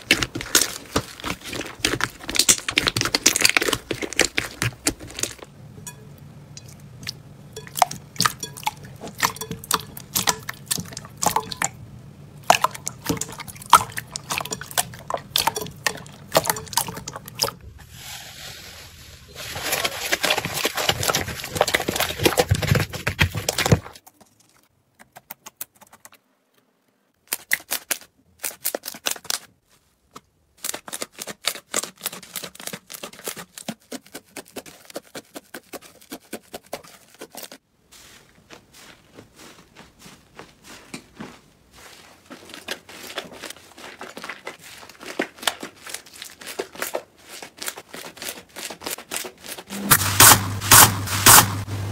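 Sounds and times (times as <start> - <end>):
foamy slime being scraped: 0.0 - 5.5, 12.4 - 24.0, 30.6 - 39.4, 40.2 - 51.9.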